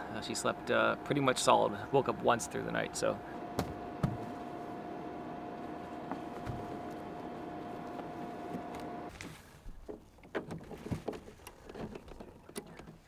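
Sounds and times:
air conditioner humming: 0.0s - 9.1s
solar panels clicking and knocking: 0.4s - 13.0s.

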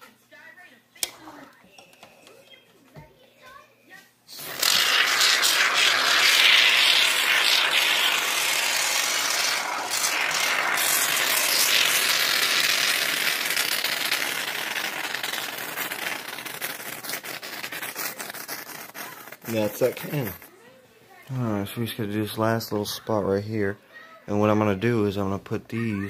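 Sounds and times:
aerosol foam can hissing: 4.3s - 20.5s.

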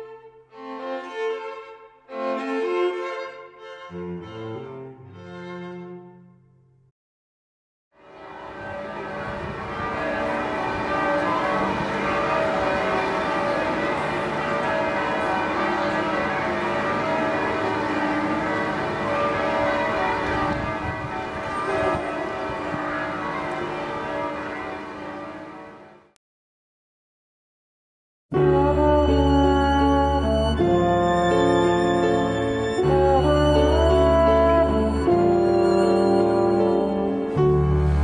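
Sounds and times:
church bells ringing: 8.0s - 26.0s, 28.5s - 38.0s.

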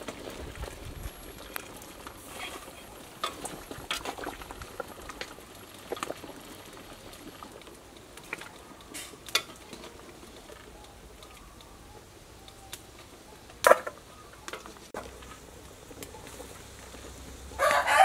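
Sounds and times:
water boiling in a pot: 0.0s - 18.0s
metal utensils clicking on pot: 7.4s - 11.4s.

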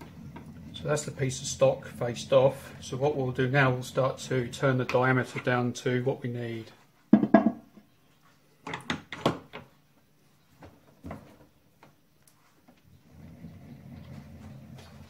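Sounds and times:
low steady hum: 0.0s - 6.8s.

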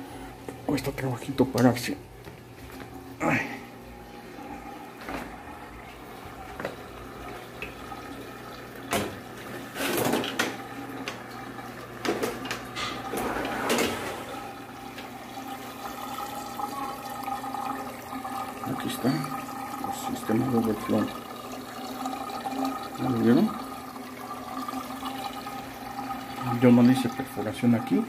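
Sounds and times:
water running and splashing: 5.9s - 28.0s.

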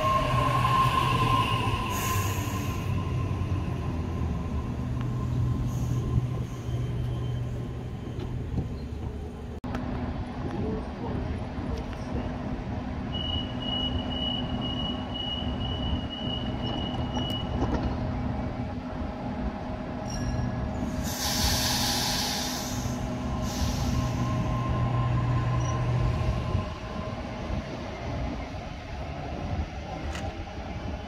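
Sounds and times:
train low hum: 0.0s - 31.0s
door-closing warning tone: 13.2s - 17.8s
air hisses: 20.8s - 24.4s.

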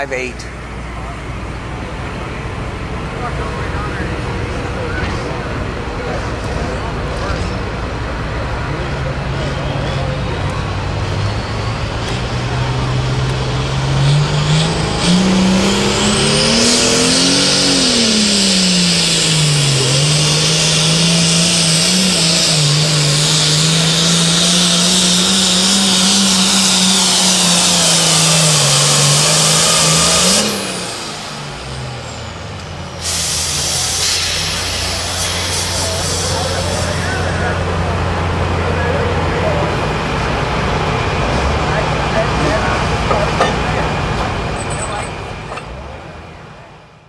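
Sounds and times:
diesel tractor engine under load: 0.0s - 47.0s
high turbo whine: 0.0s - 47.0s
diesel tractor engine idling: 17.4s - 47.0s.

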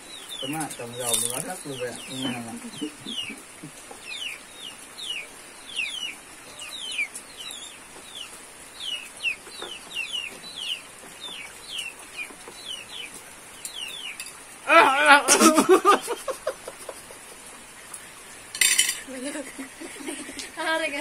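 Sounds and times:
chicks peeping: 0.0s - 14.2s.

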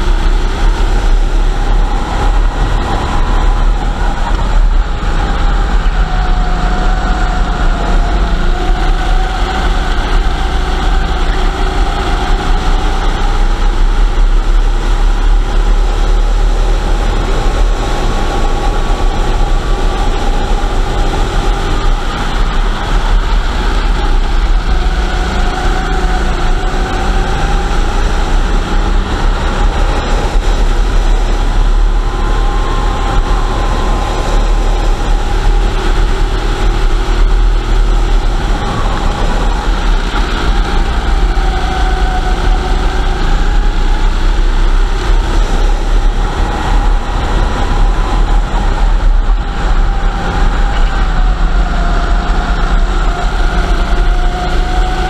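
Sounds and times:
kart engine running hard: 0.0s - 55.0s.

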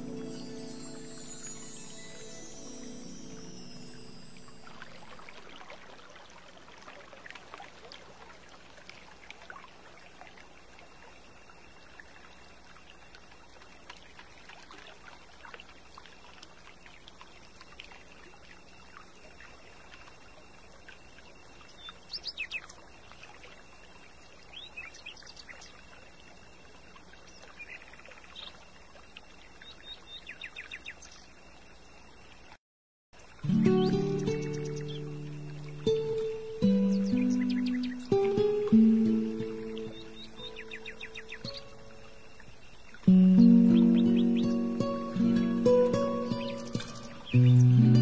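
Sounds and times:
stream water rushing: 0.0s - 28.8s, 33.2s - 48.0s
small birds chirping: 21.3s - 23.2s, 33.4s - 48.0s.

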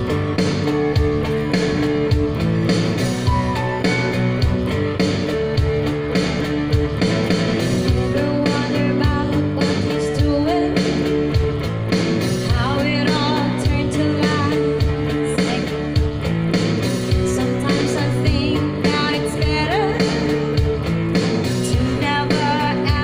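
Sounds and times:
pop song with electric guitar: 0.0s - 23.0s
woman singing: 7.8s - 11.1s, 12.4s - 16.0s, 17.1s - 20.6s, 21.5s - 23.0s.

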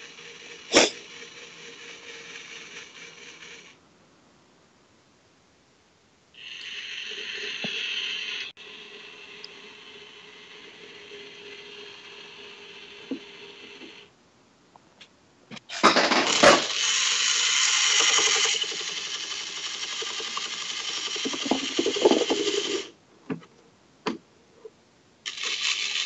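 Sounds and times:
claw machine motors whirring: 0.0s - 3.8s, 6.4s - 14.1s, 15.6s - 22.9s, 25.3s - 26.0s.

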